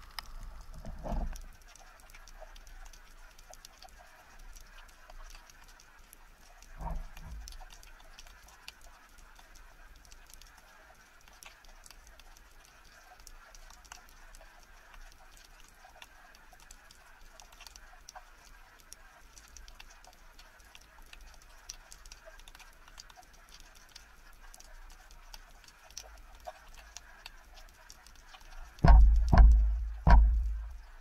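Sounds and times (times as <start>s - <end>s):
underwater clicks and snaps: 0.0s - 31.0s
low hum: 28.8s - 31.0s.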